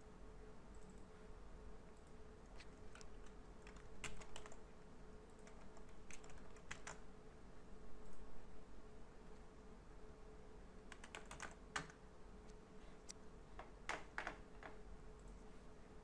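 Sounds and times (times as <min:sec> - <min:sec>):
faint steady hum: 0:00.0 - 0:16.0
computer keyboard keystrokes: 0:02.0 - 0:04.6, 0:05.3 - 0:07.0, 0:10.9 - 0:12.0.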